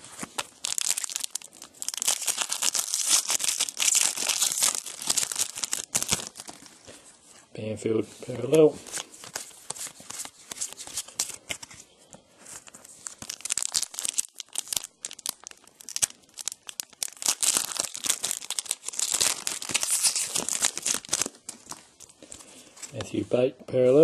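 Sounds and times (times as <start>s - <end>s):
foil wrapper tearing and crinkling: 0.0s - 6.8s, 12.7s - 22.4s.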